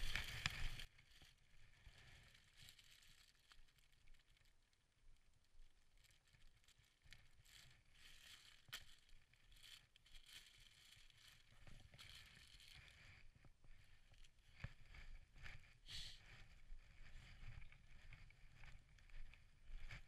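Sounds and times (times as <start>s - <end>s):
plastic bag crinkling: 0.0s - 1.3s, 2.0s - 4.7s, 5.7s - 14.6s.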